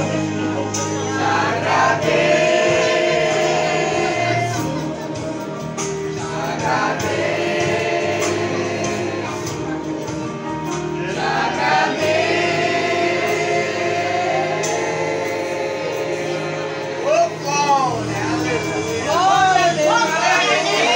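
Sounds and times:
choir singing a hymn: 0.0s - 20.9s.

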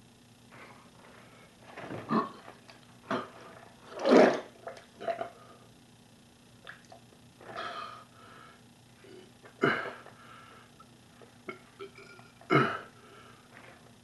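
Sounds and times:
man's hiccup-like throat noises: 2.0s - 2.5s, 11.4s - 13.0s.

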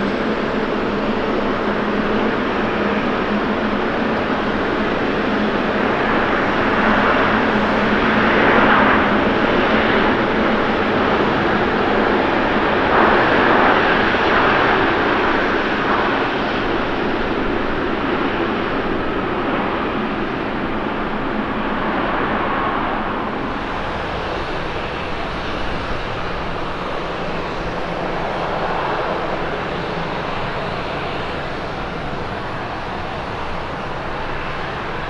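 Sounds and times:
jet engine rush: 0.0s - 35.0s.

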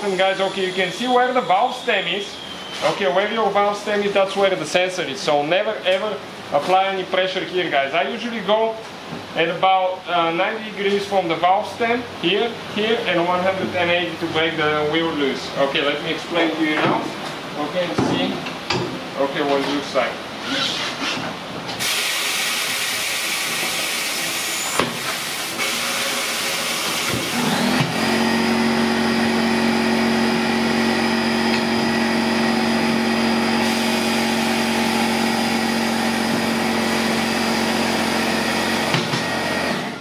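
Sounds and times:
pneumatic air hissing: 21.8s - 27.8s, 33.6s - 35.0s
steady motor hum: 22.6s - 40.0s.

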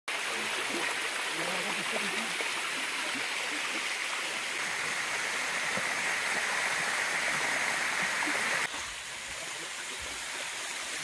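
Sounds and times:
water running over rocks: 0.1s - 11.0s.

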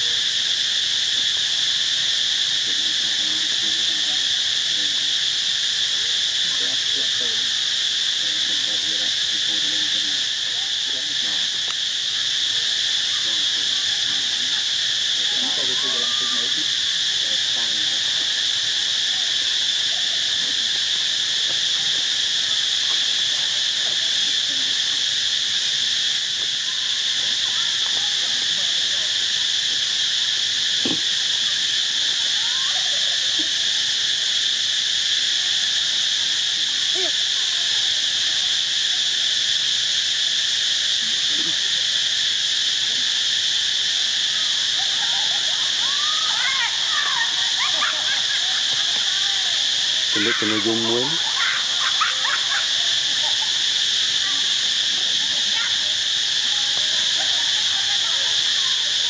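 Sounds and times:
insect chorus drone: 0.0s - 59.0s.

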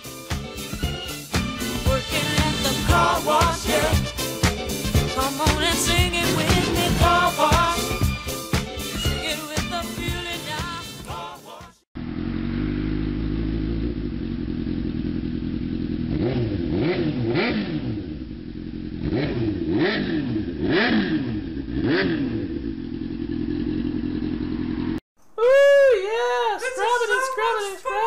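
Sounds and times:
engine revving: 0.7s - 8.4s, 12.0s - 25.0s.

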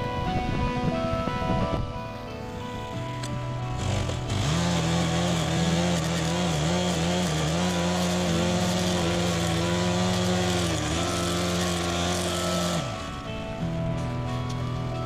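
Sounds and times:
petrol lawn edger running: 3.6s - 14.9s
blade cutting along kerb: 3.7s - 13.4s.

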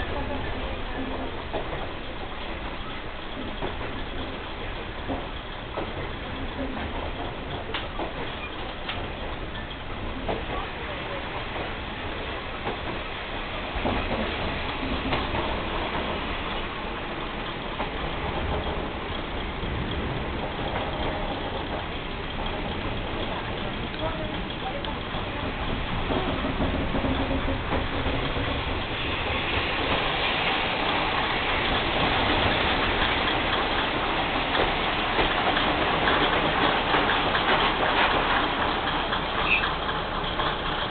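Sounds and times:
railcar engine and wheels running: 0.0s - 40.9s
clicks over rail joints: 0.9s - 10.8s, 13.7s - 30.2s.

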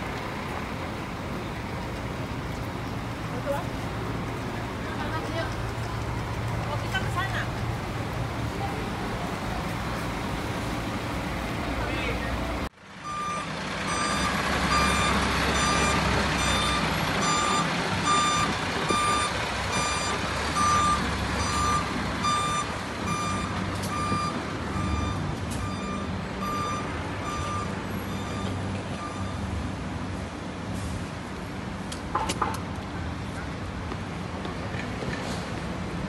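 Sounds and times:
diesel engine rumble: 0.0s - 36.0s
reversing alarm beeping: 13.0s - 29.5s.

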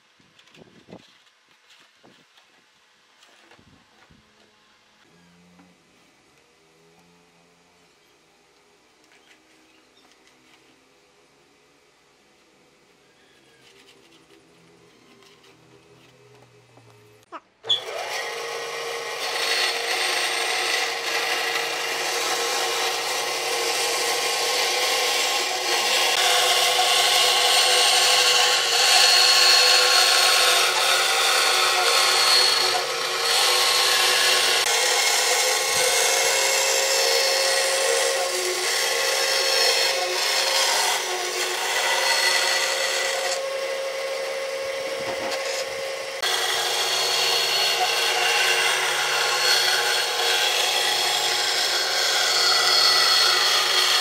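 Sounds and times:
electric power tool whining on wood: 17.6s - 54.0s.

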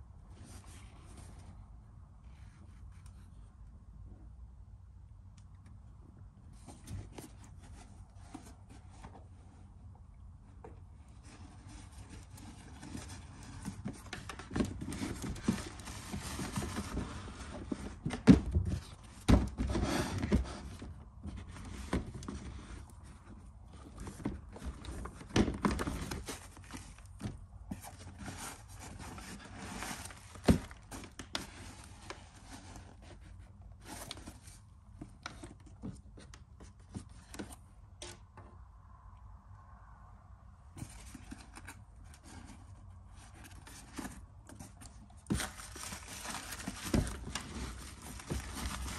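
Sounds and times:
wrapping rustling: 43.5s - 48.9s.

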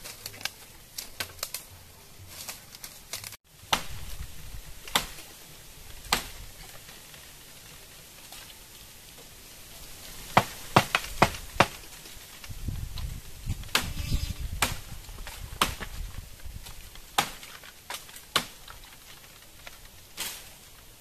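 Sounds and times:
bamboo stalks rustling: 0.0s - 21.0s
blade chopping bamboo: 4.8s - 5.3s, 6.1s - 6.4s, 10.4s - 11.8s, 14.6s - 14.9s, 15.5s - 16.0s, 17.1s - 18.8s.

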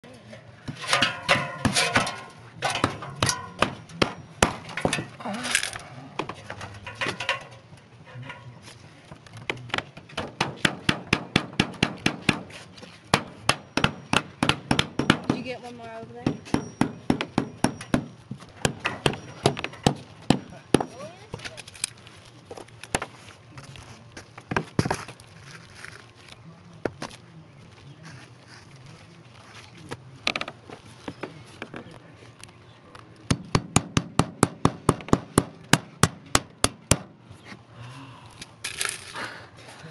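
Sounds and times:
hammers pounding nails: 0.7s - 5.2s, 9.7s - 12.5s, 13.1s - 15.5s, 16.2s - 20.9s, 33.3s - 37.1s.

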